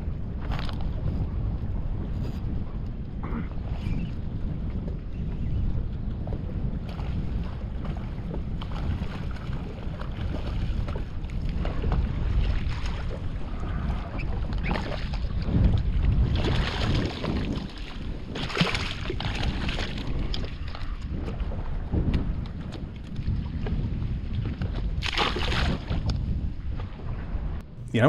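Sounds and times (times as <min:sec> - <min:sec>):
wind buffeting microphone: 0:00.0 - 0:28.0
water splashing against boat hull: 0:06.3 - 0:27.0.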